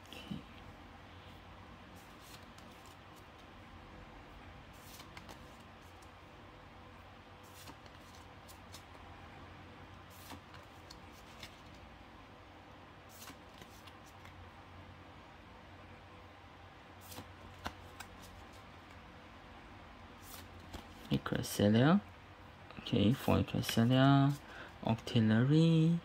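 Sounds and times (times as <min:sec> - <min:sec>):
room hum: 0:00.0 - 0:26.0
trading cards clicking and scraping: 0:04.7 - 0:06.1, 0:07.4 - 0:09.0, 0:10.0 - 0:11.9, 0:13.1 - 0:14.4, 0:17.0 - 0:19.0.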